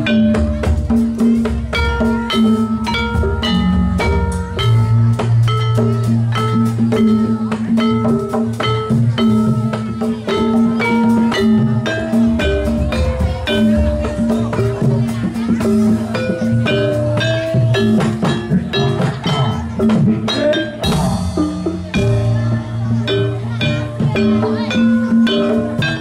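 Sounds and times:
drum beats: 0.0s - 26.0s
gamelan music: 0.0s - 26.0s.

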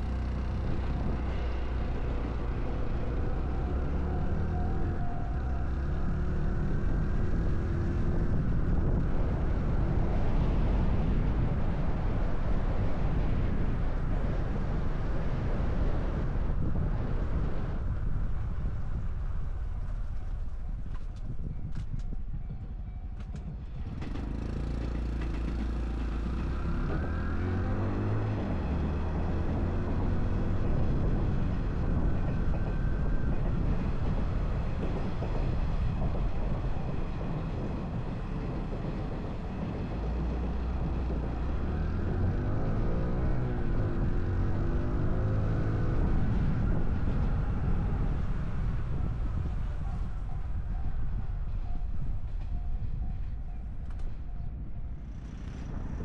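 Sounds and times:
motorcycle engine accelerating: 23.4s - 52.6s.

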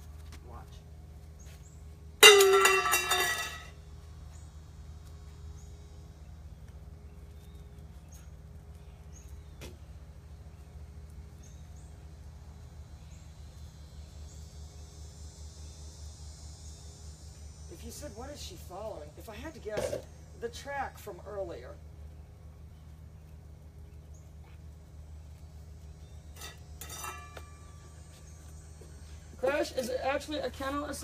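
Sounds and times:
metal bowl clanging on concrete: 2.2s - 3.8s, 26.4s - 27.8s.

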